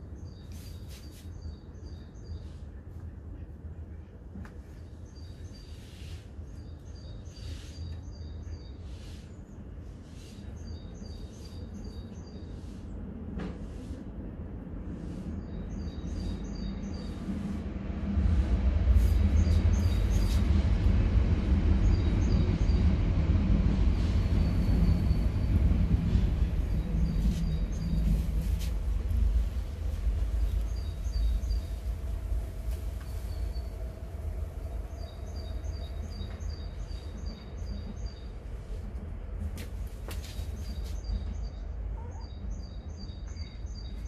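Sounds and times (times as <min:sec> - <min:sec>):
low rumble: 0:12.6 - 0:43.7
birds chirping: 0:24.0 - 0:38.4.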